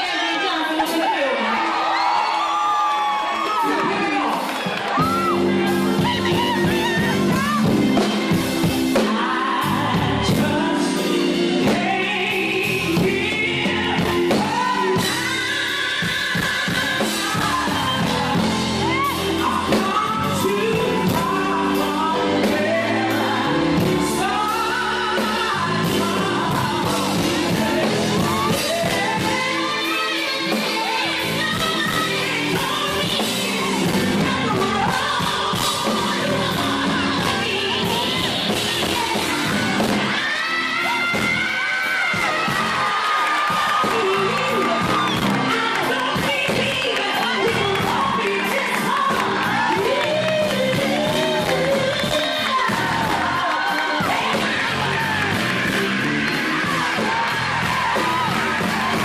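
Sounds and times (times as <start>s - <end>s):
instrumental backing: 3.5s - 59.0s
woman singing gospel: 5.0s - 55.8s, 56.6s - 59.0s.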